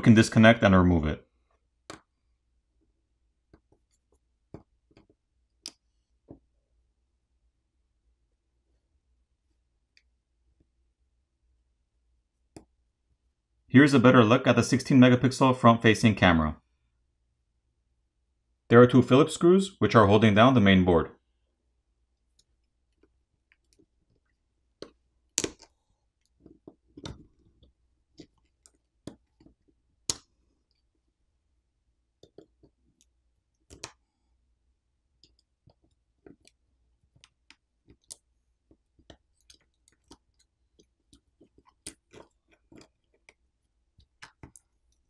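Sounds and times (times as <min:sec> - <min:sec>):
small clicks and taps: 0:03.5 - 0:06.4, 0:32.2 - 0:34.1, 0:35.2 - 0:45.0.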